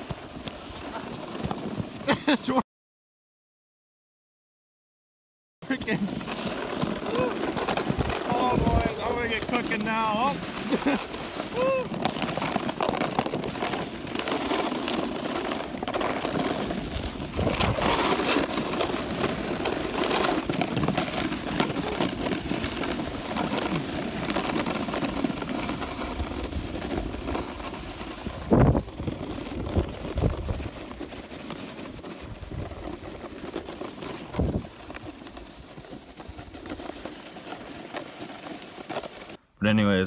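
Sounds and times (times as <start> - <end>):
snowboard scraping on snow: 0.0 - 2.6, 5.6 - 39.4
wind on microphone: 7.8 - 9.2, 17.2 - 18.0, 28.2 - 30.7.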